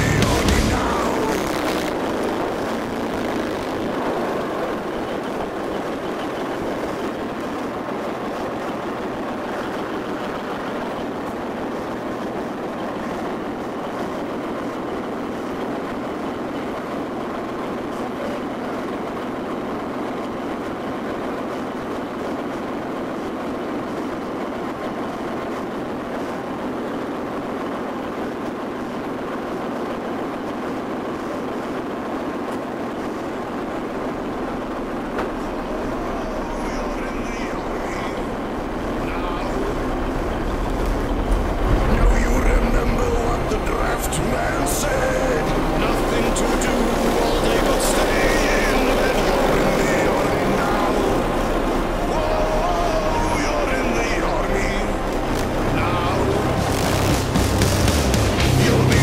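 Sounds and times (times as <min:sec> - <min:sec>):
diesel engine running: 0:00.0 - 0:07.2, 0:33.4 - 0:59.0.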